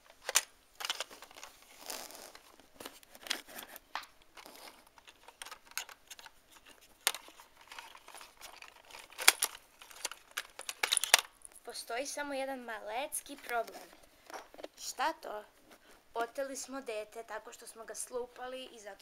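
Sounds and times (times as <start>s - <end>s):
plastic toys clicking and tapping: 0.2s - 1.6s, 2.8s - 11.6s.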